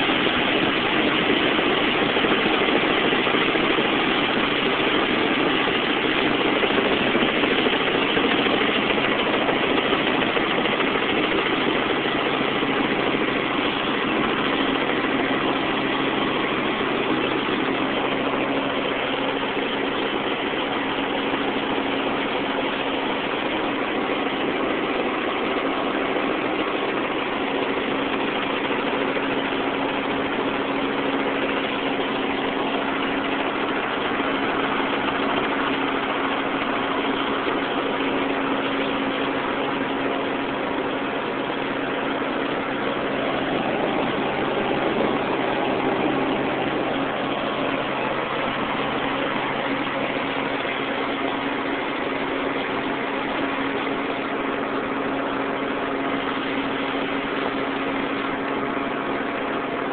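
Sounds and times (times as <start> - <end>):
helicopter engine and rotor drone: 0.0 - 59.9.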